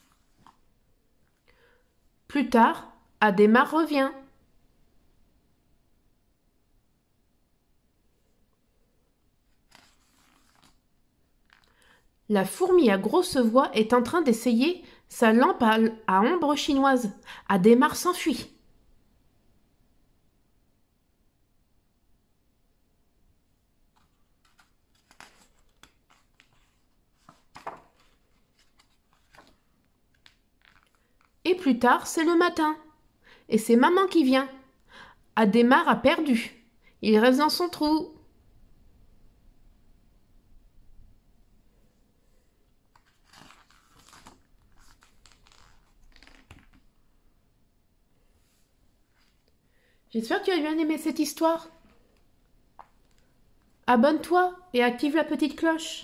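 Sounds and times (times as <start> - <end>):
paper page rustling: 0.0 - 0.8, 9.4 - 12.0, 23.9 - 31.4, 42.8 - 46.9, 48.4 - 49.5.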